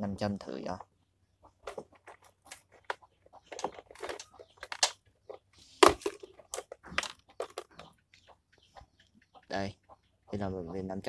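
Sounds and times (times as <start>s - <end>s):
rummaging clicks and rustles: 1.6s - 8.2s.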